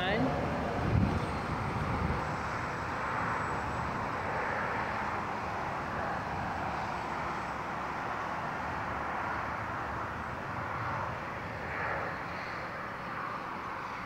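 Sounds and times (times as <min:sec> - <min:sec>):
highway traffic going by: 0:00.0 - 0:14.0.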